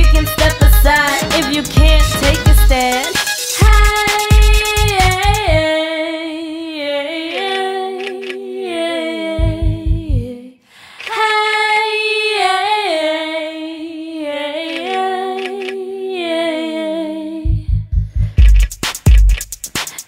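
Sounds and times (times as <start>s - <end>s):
low bass beats: 0.0s - 5.6s, 9.4s - 10.2s, 17.5s - 19.7s
gliding sung vocal: 0.2s - 17.6s.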